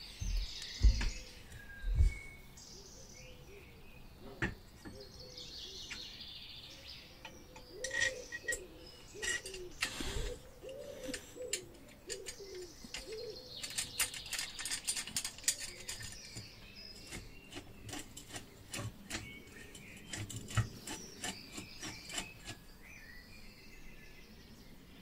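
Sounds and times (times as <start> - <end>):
birds calling: 0.0 - 25.0
screwdriver clicking on metal plate: 7.2 - 8.6, 9.2 - 10.0, 10.7 - 16.4, 17.0 - 22.6.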